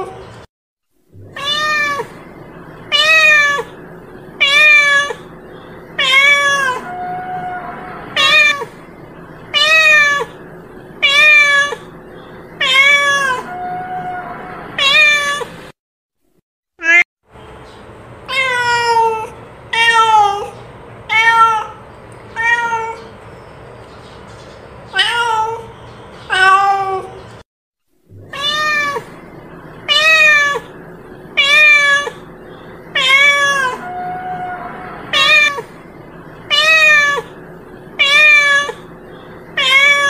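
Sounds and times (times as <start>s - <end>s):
cat meowing: 1.2s - 2.2s, 2.9s - 3.8s, 4.4s - 5.3s, 6.0s - 8.8s, 9.5s - 10.4s, 11.0s - 11.9s, 12.6s - 15.5s, 16.8s - 17.0s, 18.3s - 23.1s, 24.9s - 25.7s, 26.3s - 27.2s, 28.2s - 29.2s, 29.9s - 30.8s, 31.4s - 32.3s, 32.9s - 35.8s, 36.5s - 37.3s, 38.0s - 38.9s, 39.6s - 40.0s.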